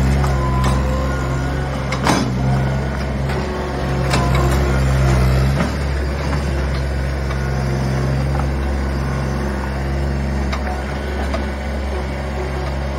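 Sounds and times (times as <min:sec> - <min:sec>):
skid steer diesel engine running: 0:00.0 - 0:12.9.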